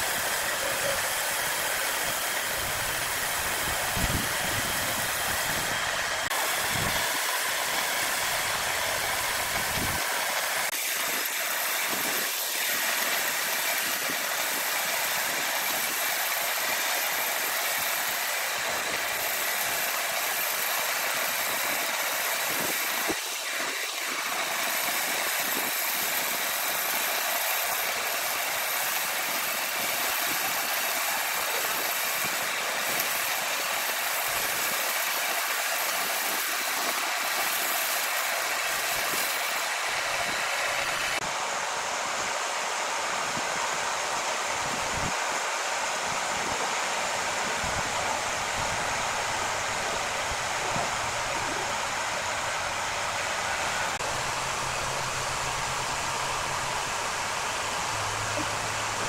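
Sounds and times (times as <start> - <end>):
band saw cutting log: 0.0 - 41.4
high machine whine: 0.0 - 59.0.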